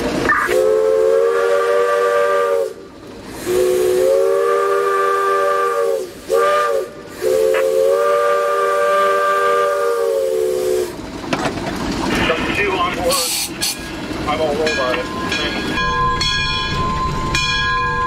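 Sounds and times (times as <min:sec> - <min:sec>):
steam locomotive whistle blasts: 0:00.3 - 0:11.0.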